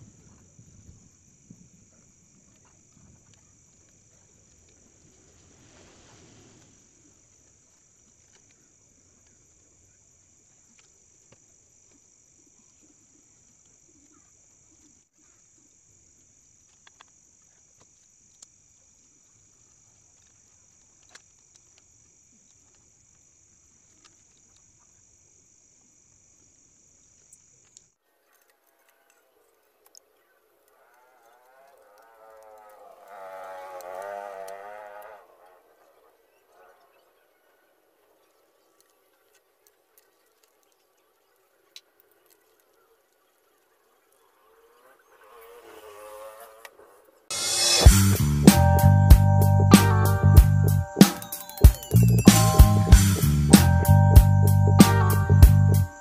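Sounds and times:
crickets chirring: 0.0s - 28.0s, 30.9s - 37.0s, 47.3s - 56.0s
wavering pitched sound: 47.3s - 56.0s.

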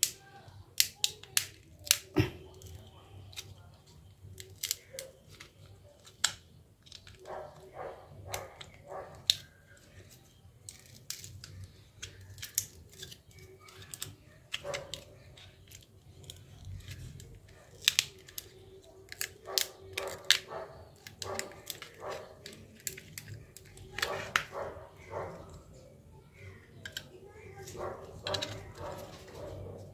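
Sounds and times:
hard plastic clicking and snapping: 0.0s - 3.5s, 26.6s - 29.4s.

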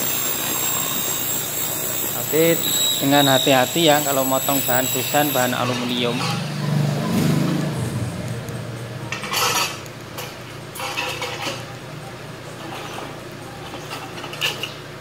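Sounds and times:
steady low hum: 6.8s - 15.0s.

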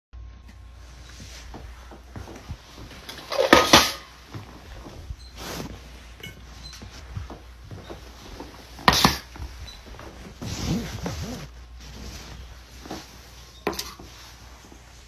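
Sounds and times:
bowls scraping and clattering: 3.1s - 4.2s, 13.5s - 14.2s
metal bowls knocking on hard floor: 3.3s - 4.1s.

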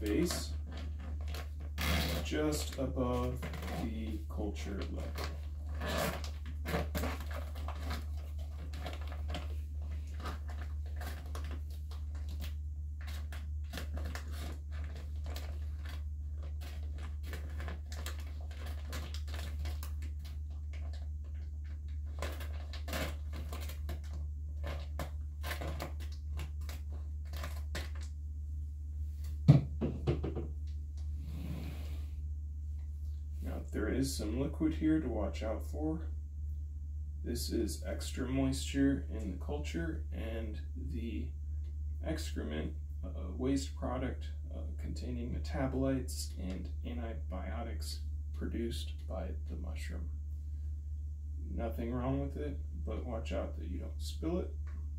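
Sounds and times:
plastic crinkling: 0.0s - 28.1s
steady low hum: 0.0s - 54.9s
small knocks: 29.4s - 30.7s.

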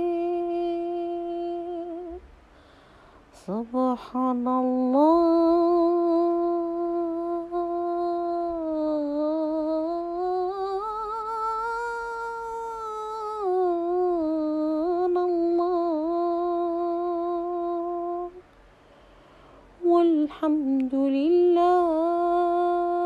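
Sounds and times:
woman humming a chant: 0.0s - 2.2s, 3.4s - 18.4s.

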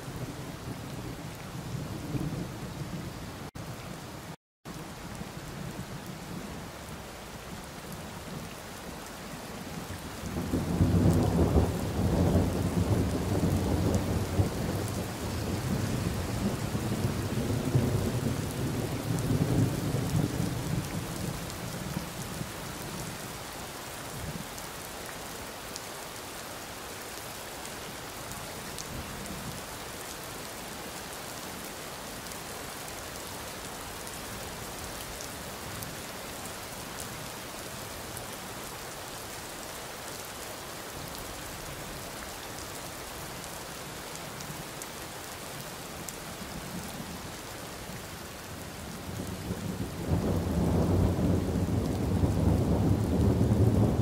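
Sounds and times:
steady rain: 0.0s - 54.0s
thunder rumbling: 49.1s - 54.0s.

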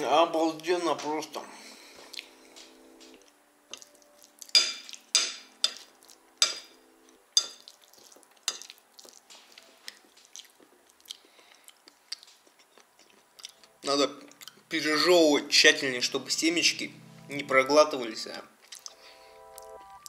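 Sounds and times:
soft chewing: 1.7s - 6.3s, 7.0s - 14.8s, 18.6s - 20.0s.

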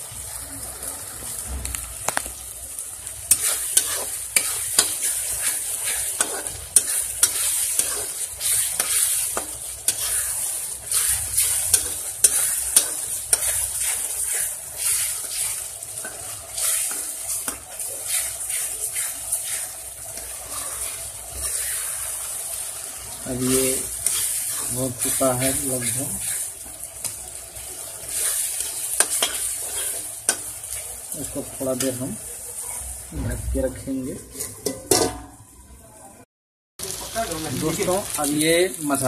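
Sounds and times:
gravy sizzling: 0.0s - 39.0s
spatula scraping a pan: 3.3s - 33.2s, 34.2s - 35.1s.

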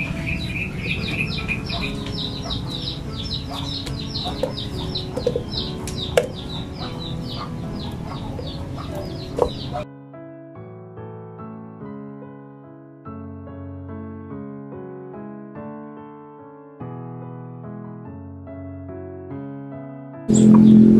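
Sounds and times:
chickens cheeping and clucking: 0.0s - 9.8s
soft piano music: 0.0s - 20.9s
sharp knocks: 3.6s - 7.5s.

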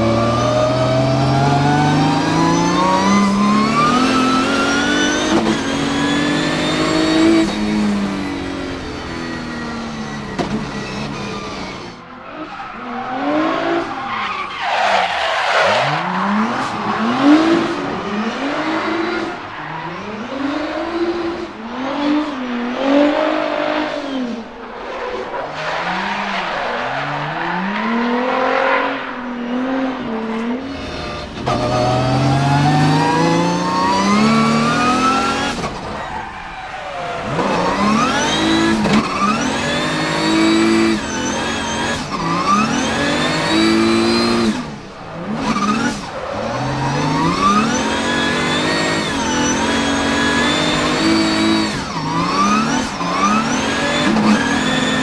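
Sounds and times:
car engine revving: 0.0s - 55.0s.

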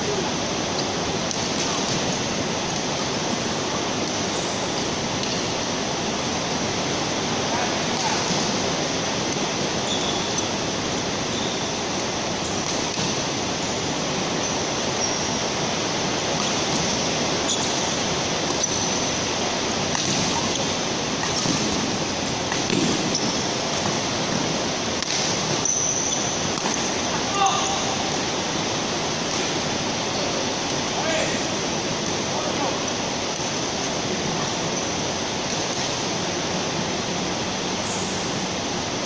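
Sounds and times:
shoes squeaking on court floor: 9.8s - 10.5s, 16.4s - 19.2s, 19.9s - 27.8s.

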